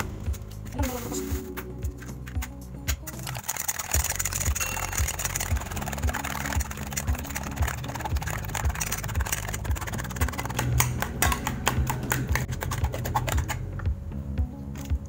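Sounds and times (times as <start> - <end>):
whisk clicking against metal bowl: 2.4 - 13.6.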